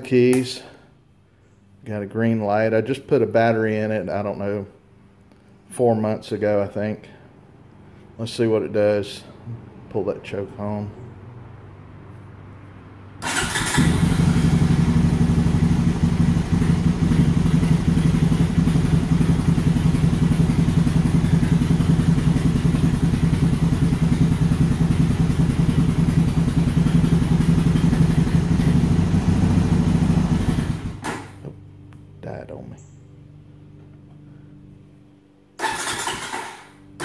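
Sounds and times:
electric starter cranking: 13.2 - 14.3, 35.6 - 37.0
engine fast idle: 13.2 - 31.1.

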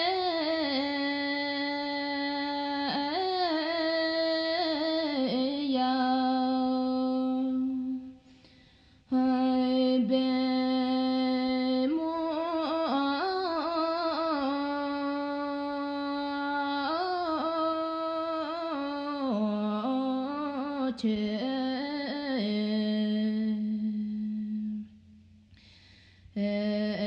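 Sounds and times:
person singing unaccompanied: 0.0 - 8.2, 9.1 - 24.9, 26.4 - 27.0.

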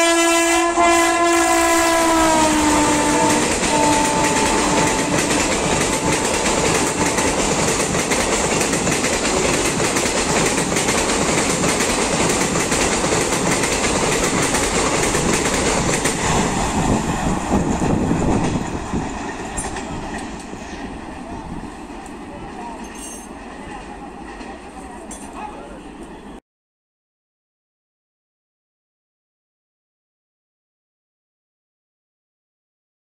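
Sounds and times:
locomotive horn: 0.0 - 7.4
train coaches rushing past: 0.5 - 26.4.

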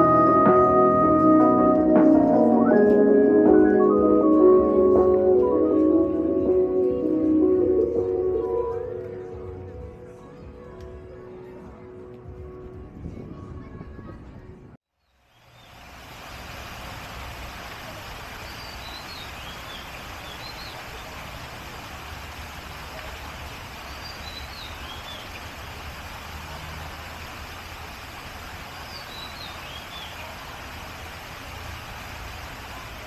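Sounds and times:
bird chirping: 18.4 - 21.2, 23.8 - 25.4, 28.8 - 30.3.

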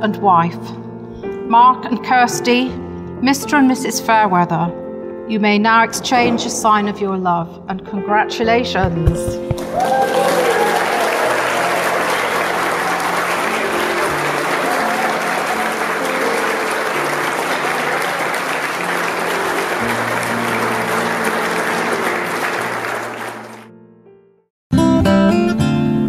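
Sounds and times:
crowd applauding: 9.4 - 23.7
music with long held chords: 9.5 - 24.1.

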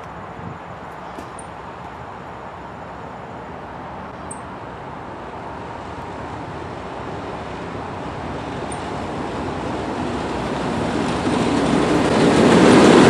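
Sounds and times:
diesel locomotive engine rumble: 0.0 - 13.0.

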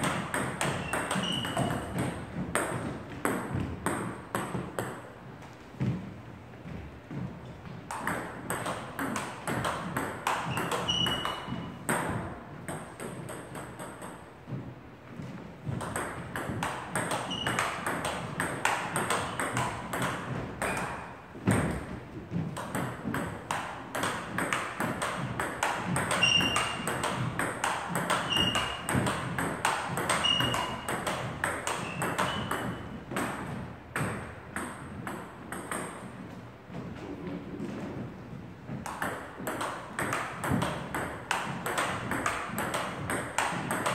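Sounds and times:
short high squeaks: 0.8 - 1.9, 10.5 - 11.7, 17.2 - 17.6, 26.2 - 26.8, 28.2 - 28.9, 30.2 - 30.9, 31.8 - 33.0.

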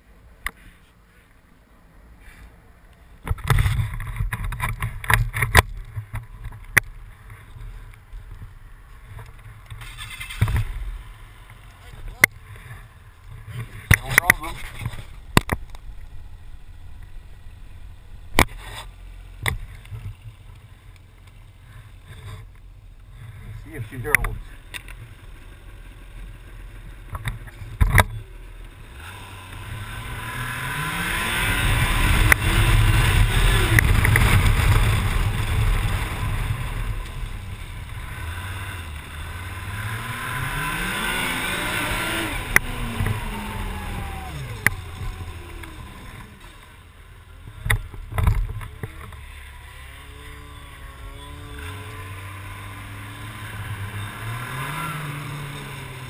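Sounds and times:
snowmobile engine accelerating: 23.1 - 56.0.

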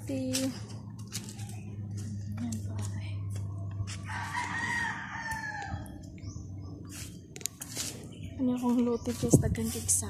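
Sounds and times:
rooster crowing: 4.0 - 6.0.

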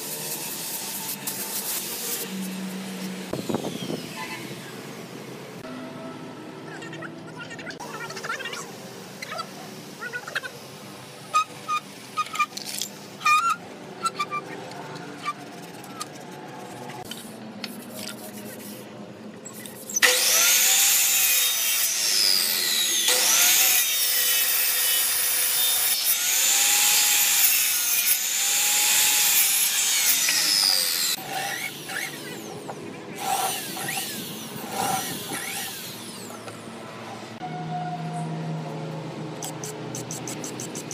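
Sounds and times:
electric miter saw cutting wood: 0.0 - 5.2, 20.0 - 36.7.

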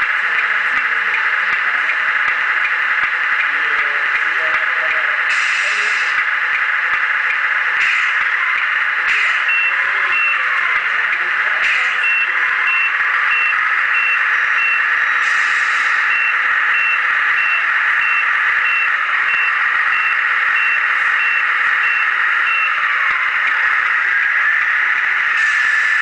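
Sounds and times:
high electronic reversing beep: 7.8 - 26.0.

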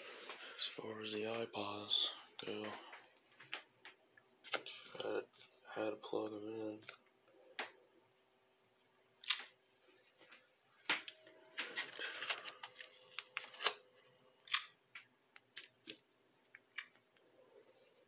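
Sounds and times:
rustling: 2.6 - 5.8, 9.8 - 14.2.

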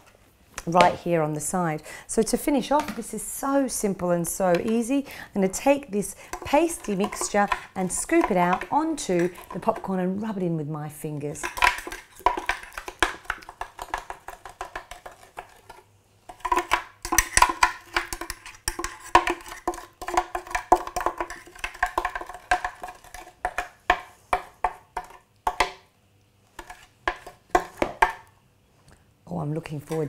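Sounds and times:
utensil scraping in blender jug: 5.9 - 9.9, 11.4 - 23.5.

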